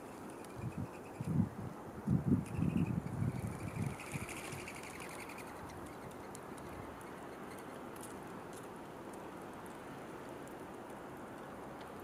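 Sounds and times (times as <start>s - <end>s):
steady outdoor background noise: 0.0s - 12.0s
faint high-pitched ticks: 2.4s - 12.0s.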